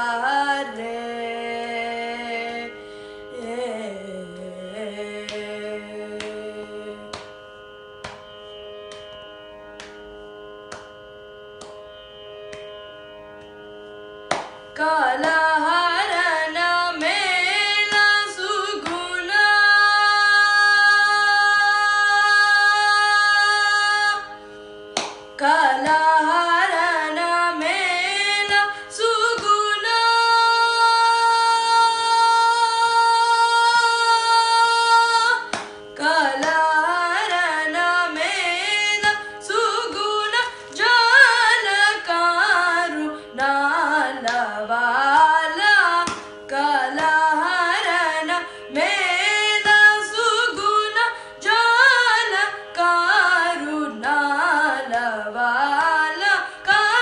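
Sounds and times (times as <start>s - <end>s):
boy singing: 3.4s - 7.1s, 14.8s - 24.3s, 25.4s - 57.0s.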